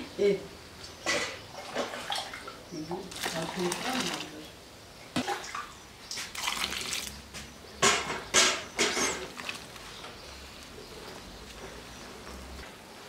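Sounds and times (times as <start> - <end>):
hands kneading dough: 9.2 - 12.0.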